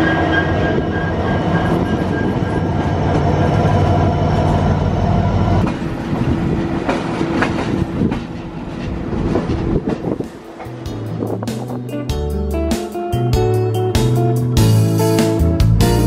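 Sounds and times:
high whine: 0:00.0 - 0:05.8
train wheels rumbling on rails: 0:00.0 - 0:13.2
locomotive engine drone: 0:00.0 - 0:16.0.

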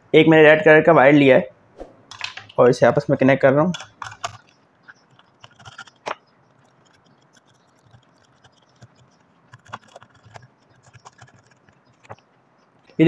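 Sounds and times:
wire clicking into terminals: 0:03.6 - 0:08.6.

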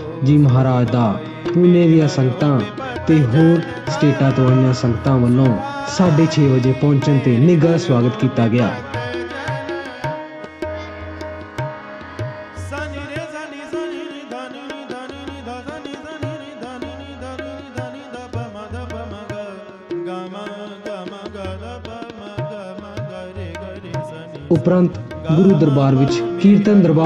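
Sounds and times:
devotional melody bending in pitch: 0:00.0 - 0:14.4, 0:23.8 - 0:27.0
tabla drumming: 0:00.0 - 0:27.0.

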